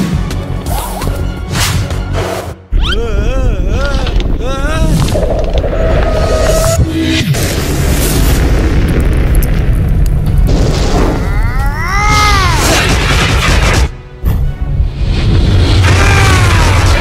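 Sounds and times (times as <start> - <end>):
booming rumble: 3.6 - 11.7.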